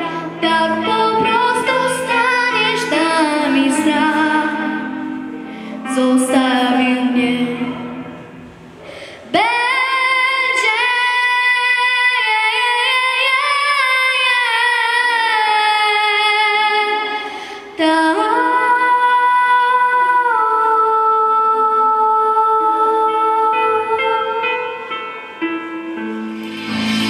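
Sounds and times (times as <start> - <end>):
girl singing into a microphone: 0.0 - 8.3, 8.9 - 25.8
breath: 5.4 - 5.8, 8.8 - 9.3, 17.2 - 17.8.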